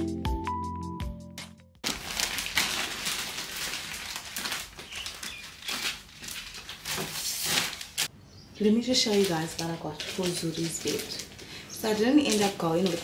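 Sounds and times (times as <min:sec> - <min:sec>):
music: 0:00.0 - 0:01.8
plastic bag crinkling: 0:01.8 - 0:08.1, 0:08.7 - 0:13.0.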